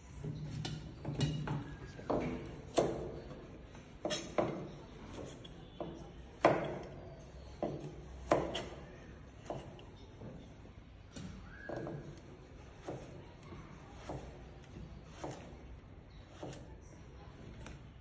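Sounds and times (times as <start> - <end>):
knife chopping carrot on board: 4.0 - 7.0, 7.6 - 8.8, 12.8 - 13.2, 13.9 - 15.6, 16.3 - 16.7.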